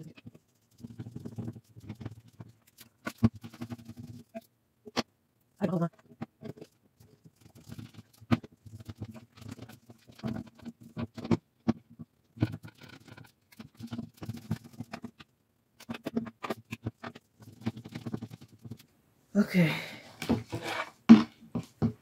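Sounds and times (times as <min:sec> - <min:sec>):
shelf parts clicking and knocking: 0:20.2 - 0:22.0.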